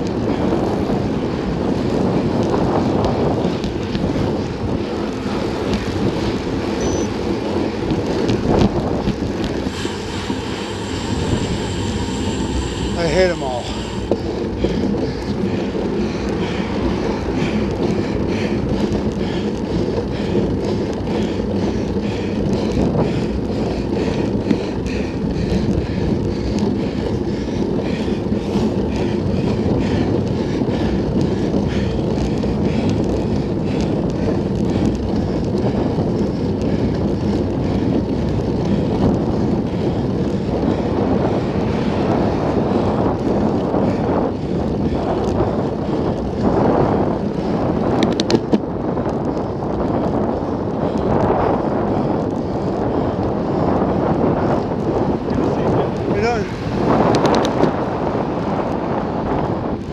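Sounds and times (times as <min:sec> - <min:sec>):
wind rushing over microphone: 0:00.0 - 0:59.9.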